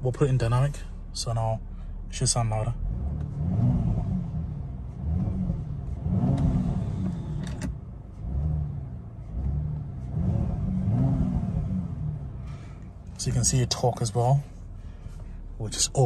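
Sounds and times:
car engine revving in blips: 0:02.7 - 0:14.4.

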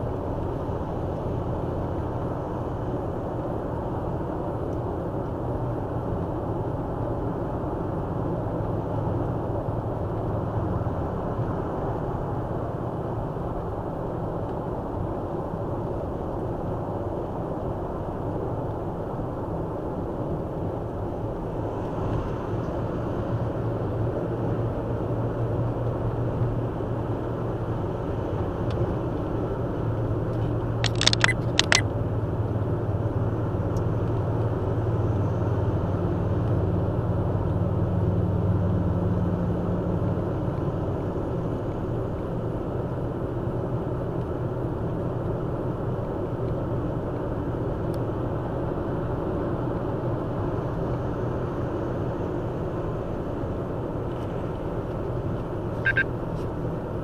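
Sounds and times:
low engine hum: 0:00.0 - 0:57.0
tyre and road noise: 0:00.0 - 0:57.0
sharp clicks: 0:30.8 - 0:31.9, 0:55.8 - 0:56.1
short high-pitched sound: 0:55.8 - 0:56.1.

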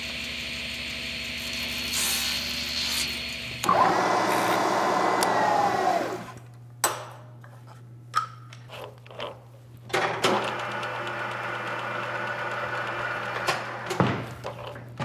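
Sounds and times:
milling machine spindle whine: 0:00.0 - 0:06.4.

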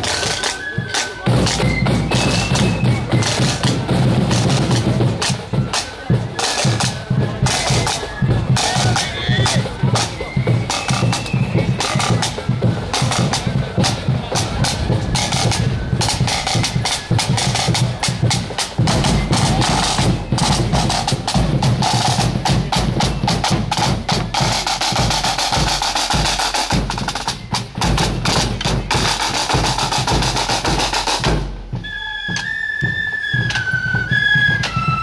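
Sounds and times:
flutes playing a melody: 0:00.0 - 0:35.0
snare drums rattling: 0:00.0 - 0:35.0
bass drum beating: 0:11.7 - 0:28.9.

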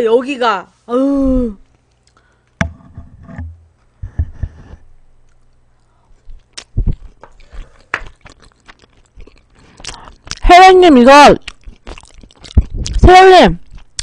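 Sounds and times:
person chewing: 0:05.2 - 0:14.0.

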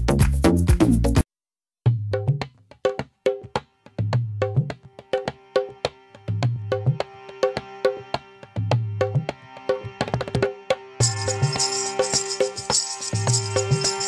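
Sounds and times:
background music with beat and bass: 0:00.0 - 0:01.2, 0:01.9 - 0:14.0
shaker: 0:11.0 - 0:14.0.

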